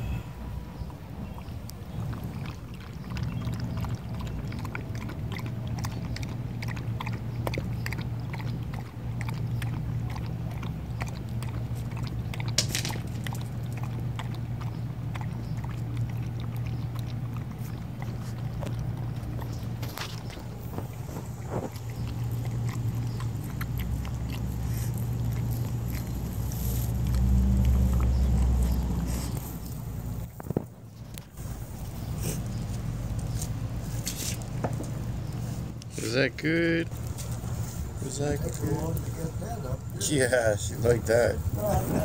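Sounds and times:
low steady hum: 0.0 - 42.0
dog lapping from bowl: 0.8 - 30.4.

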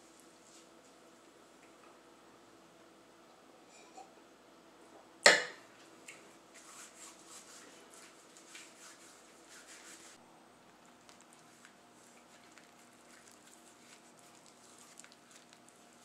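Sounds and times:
hands rustling and scraping on table: 6.5 - 10.2.

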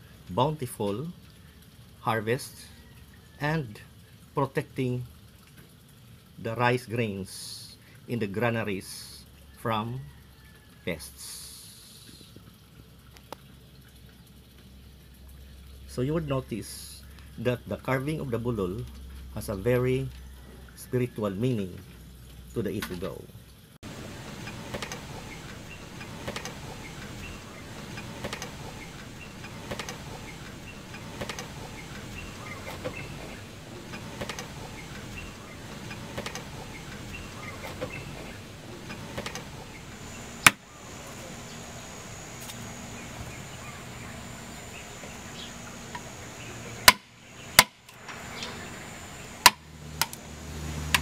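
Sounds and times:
steady background noise: 23.8 - 51.0.

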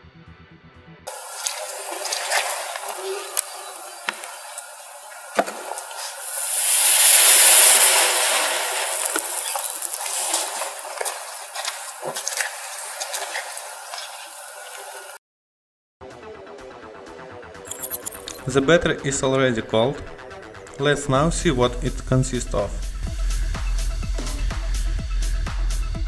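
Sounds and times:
battery venting gas hiss: 1.1 - 15.2
crackles and pops: 4.1 - 14.1.

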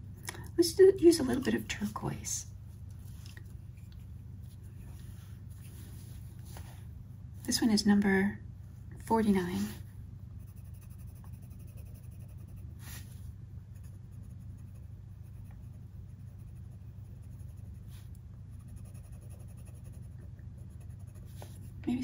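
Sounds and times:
steady low hum: 0.0 - 22.0
pencil scratching on paper: 10.4 - 13.0, 13.8 - 21.8.

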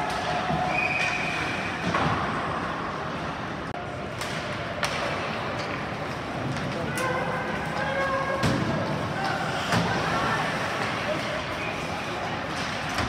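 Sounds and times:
arena and skating noise: 0.0 - 13.0
hockey sticks clacking on puck: 4.1 - 13.0.

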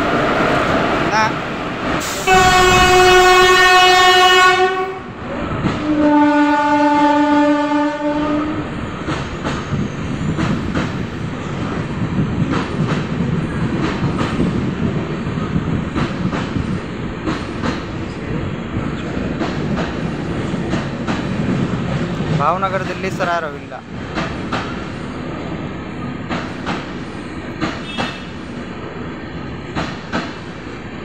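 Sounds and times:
train coaches rumbling past: 0.0 - 31.0
locomotive horn blasts: 2.2 - 5.1, 5.8 - 8.6.

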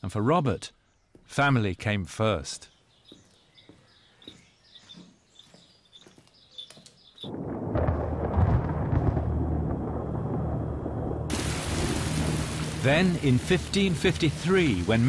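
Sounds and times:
faint birdsong: 0.0 - 7.4
low rumble of thunder: 7.3 - 13.2.

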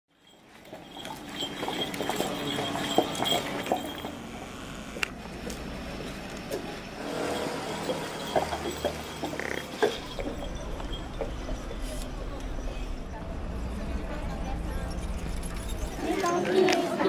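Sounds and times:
indistinct voices: 0.8 - 17.0
faint high steady tone: 9.8 - 16.5.

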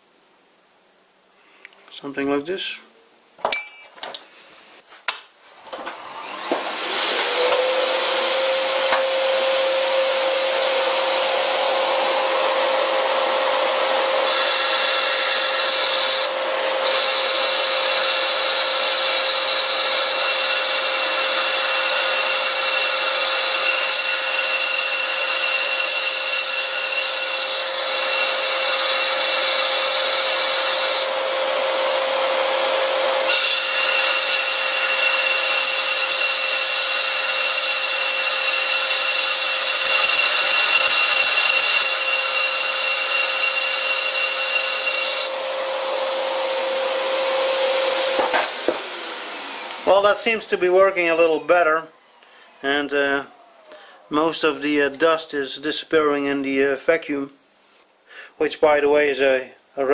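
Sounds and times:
vacuum cleaner running: 5.4 - 25.8, 27.5 - 54.1
lathe tool cutting cast iron: 5.5 - 51.3.

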